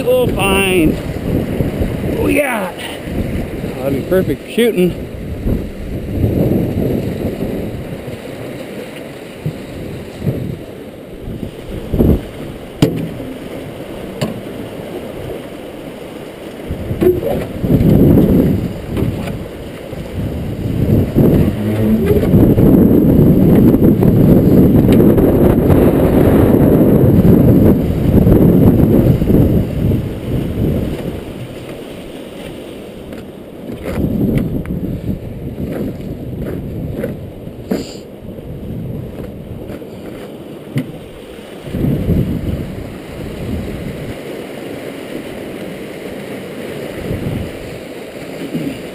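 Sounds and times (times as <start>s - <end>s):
water churning and splashing: 0.0s - 48.9s
sharp knocks: 12.8s - 13.2s, 14.2s - 14.5s.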